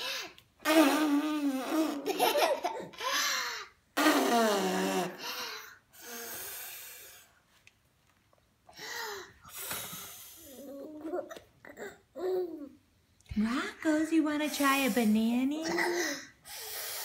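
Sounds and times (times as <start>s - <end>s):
children laughing breathily: 1.6s - 3.7s.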